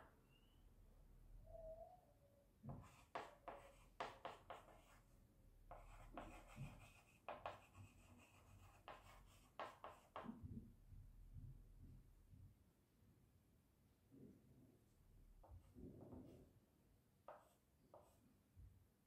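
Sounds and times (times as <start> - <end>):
chalk scratching on blackboard: 2.7 - 5.0, 5.7 - 10.3.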